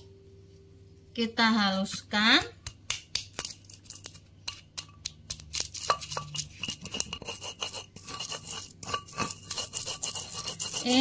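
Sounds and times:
stone pestle grinding in mortar: 0:03.3 - 0:11.0.

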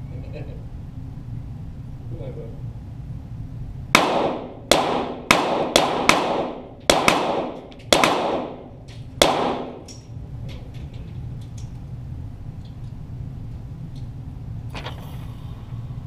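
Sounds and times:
pistol shots: 0:04.0 - 0:10.0.

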